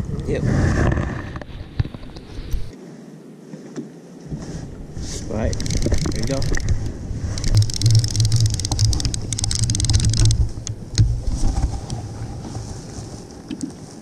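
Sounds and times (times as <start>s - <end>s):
fishing reel clicking whir: 5.4s - 6.7s, 7.3s - 10.8s.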